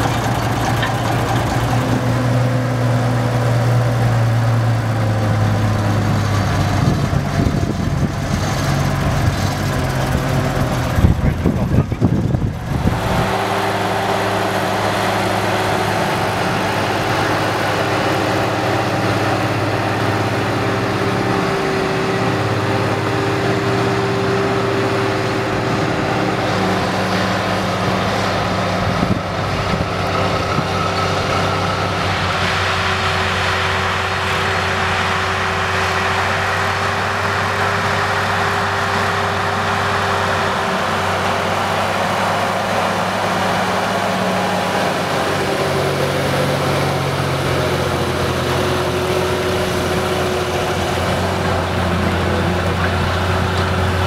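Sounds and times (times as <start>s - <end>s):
tractor diesel engine under load: 0.0s - 54.0s.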